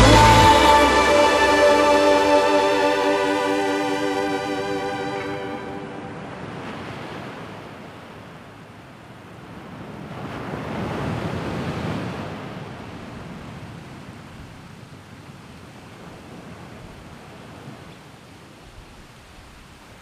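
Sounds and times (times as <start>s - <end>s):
held synth tones: 0.0s - 6.6s.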